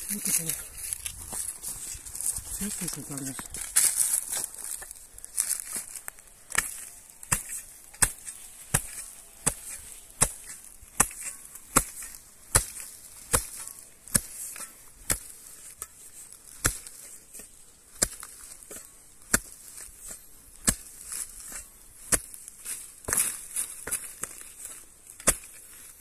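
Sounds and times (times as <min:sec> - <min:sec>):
spade chopping into soil: 0:02.7 - 0:25.9.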